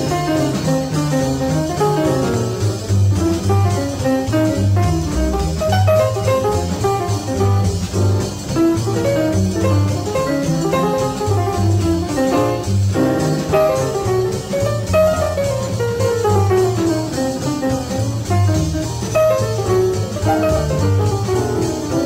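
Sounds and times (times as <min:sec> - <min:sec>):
bass line: 0:00.0 - 0:22.0
jazz guitar runs: 0:00.0 - 0:22.0.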